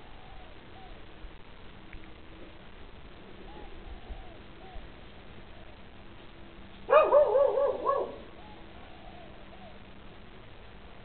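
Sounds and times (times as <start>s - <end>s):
dogs barking: 6.9s - 8.3s.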